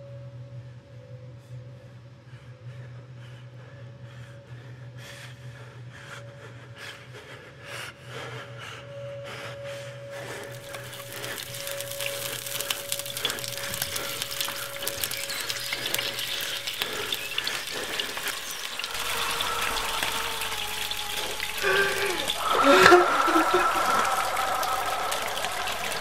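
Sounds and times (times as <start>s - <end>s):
meat sizzling in a pan: 10.5s - 26.0s
squeaky sizzle burst: 10.5s - 26.0s.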